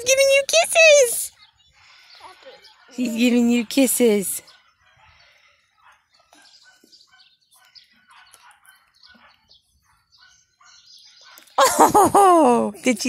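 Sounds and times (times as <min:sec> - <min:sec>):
faint bird chirps: 0:01.3 - 0:03.6, 0:04.4 - 0:11.6.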